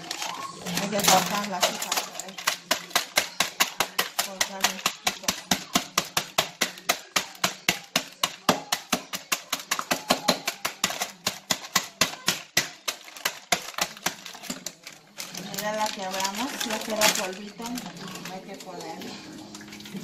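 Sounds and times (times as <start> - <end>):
mallet pounding walnuts on wood: 2.4 - 14.7.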